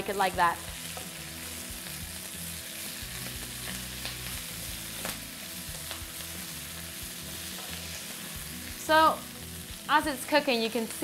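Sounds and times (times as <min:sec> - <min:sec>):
kale sizzling in a pan: 0:00.0 - 0:11.0.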